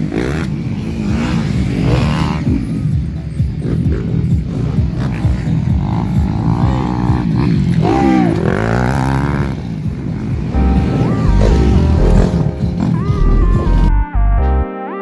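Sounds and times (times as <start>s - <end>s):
dirt bike engines revving: 0.0s - 13.9s
synthesizer music: 10.4s - 15.0s.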